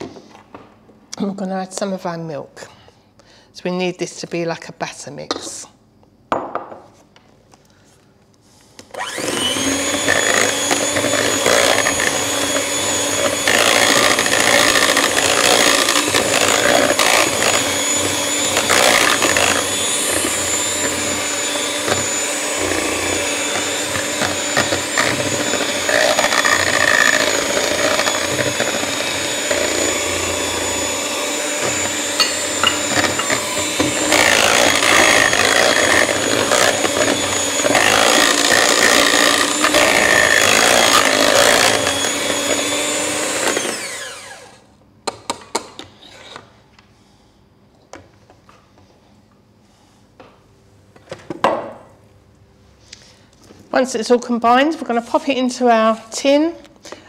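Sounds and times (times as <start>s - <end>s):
electric hand mixer whining: 8.9s - 44.7s.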